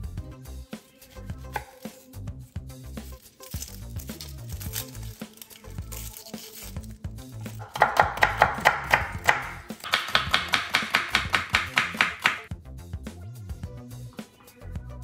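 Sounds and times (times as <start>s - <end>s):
knife slicing onion on board: 1.0s - 2.0s, 7.5s - 12.5s.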